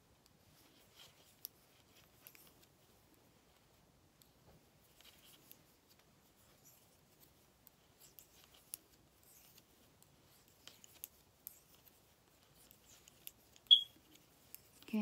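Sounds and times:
knitting needles clicking: 7.6 - 15.0.

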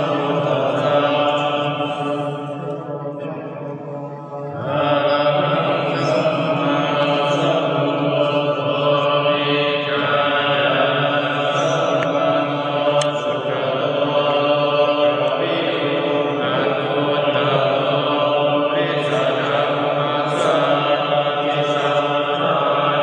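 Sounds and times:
group chanting in low voices: 0.0 - 23.0.

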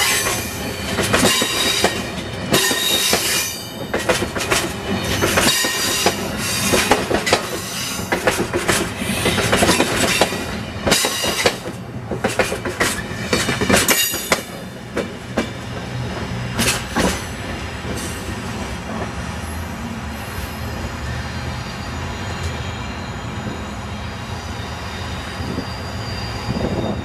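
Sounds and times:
train wheels clacking over rail joints: 0.0 - 19.1
rushing noise of passing train: 0.0 - 27.0.

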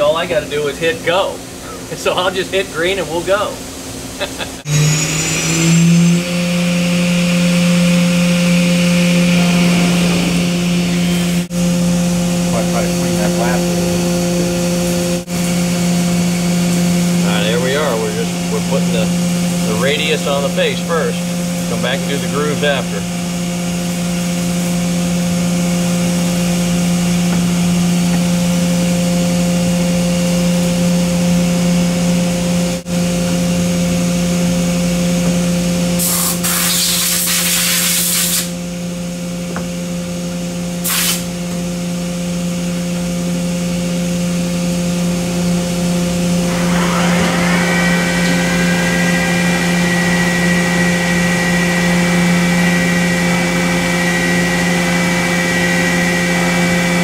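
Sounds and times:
milling machine whine and hum: 0.0 - 36.5, 38.5 - 57.0
rising machine tone: 4.6 - 29.5, 43.6 - 57.0
coolant spray hiss: 36.0 - 38.6, 40.8 - 41.3.

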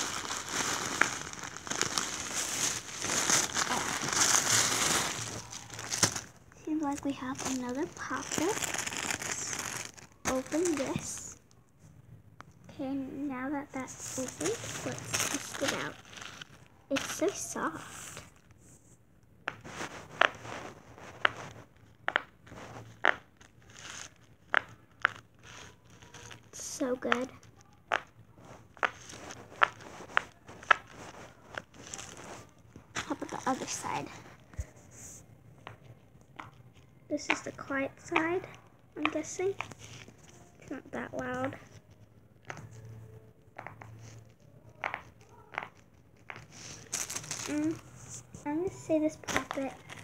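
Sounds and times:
plastic packaging crinkling: 0.0 - 11.6, 13.8 - 18.6, 19.6 - 34.8, 39.0 - 42.9, 44.9 - 48.5, 49.2 - 50.0.

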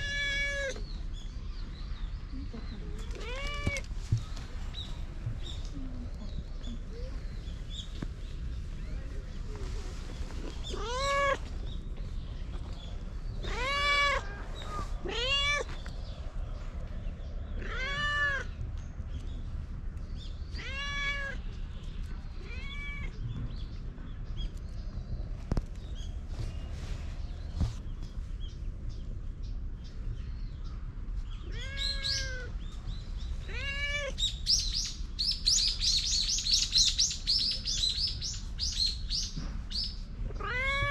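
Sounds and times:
cat meowing: 0.0 - 0.8, 3.2 - 3.9, 10.7 - 11.5, 13.4 - 15.7, 17.6 - 18.5, 20.5 - 21.4, 22.4 - 23.2, 31.4 - 32.5, 33.4 - 34.2, 40.3 - 40.9.

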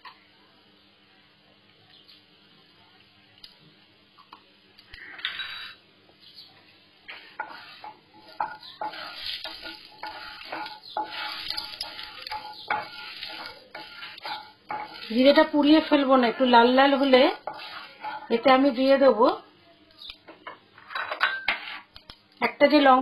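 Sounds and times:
wooden spatula scraping a pan: 7.1 - 19.1
seeds sizzling in hot oil: 7.1 - 19.4.

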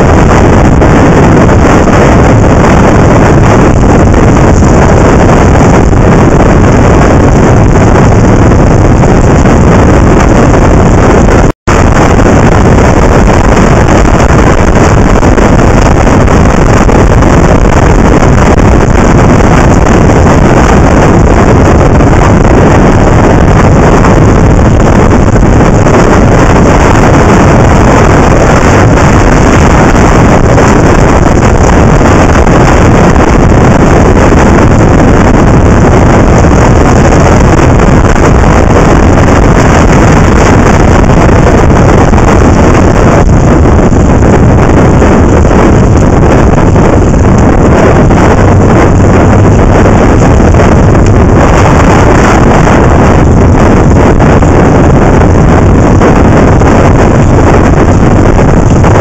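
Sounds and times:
motorcycle riding noise: 0.0 - 59.0
wind rushing over microphone: 0.0 - 59.0.

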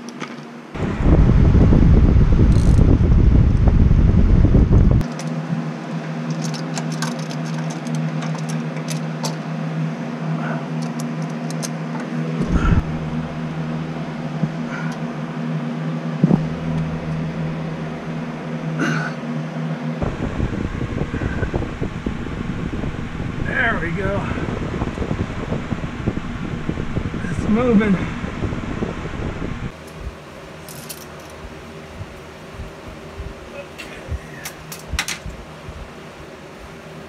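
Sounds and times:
electric fan humming: 0.0 - 37.0
wind rumble on microphone: 0.8 - 5.1, 12.4 - 14.9, 16.1 - 18.8, 20.0 - 30.2, 31.4 - 36.0.

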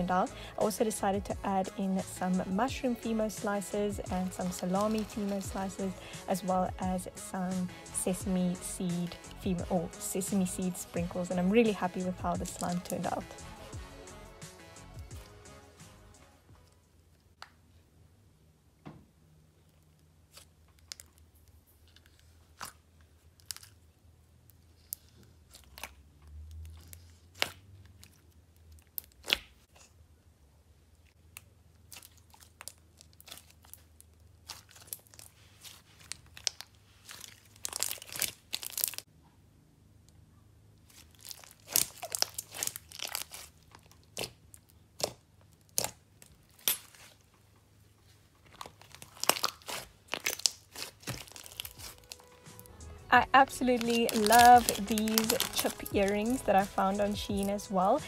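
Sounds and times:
sticky slime pops and crackles: 28.8 - 29.7, 41.2 - 46.0, 49.1 - 52.2, 54.2 - 55.8.

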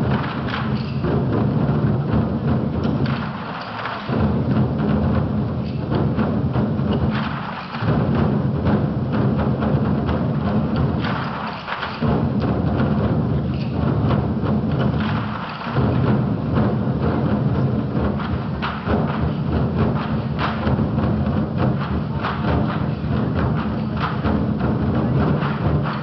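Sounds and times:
large drums beating in rolls: 0.0 - 26.0.

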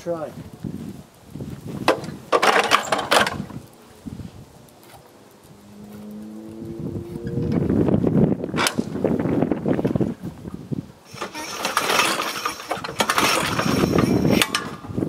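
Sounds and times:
lawn mower recoil starter pull: 1.8 - 3.6, 8.5 - 9.0, 11.1 - 15.0
engine cranking: 5.5 - 9.0, 11.1 - 15.0.

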